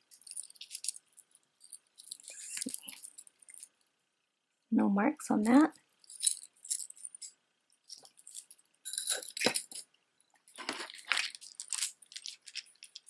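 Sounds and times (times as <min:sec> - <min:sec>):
chain and beads clicking: 0:00.0 - 0:03.8, 0:05.8 - 0:09.9, 0:11.1 - 0:13.0.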